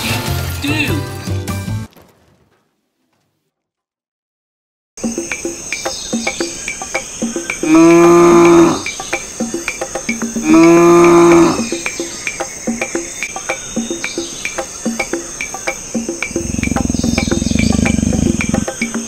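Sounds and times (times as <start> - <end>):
crickets chirping: 5.0 - 19.0
cow mooing: 7.6 - 8.9, 10.4 - 11.7, 16.3 - 19.0.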